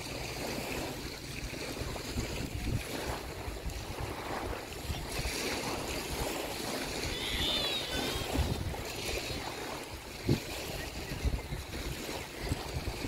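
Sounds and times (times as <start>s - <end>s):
small waves washing on shore: 0.0s - 13.0s
wind rumbling on microphone: 0.0s - 13.0s.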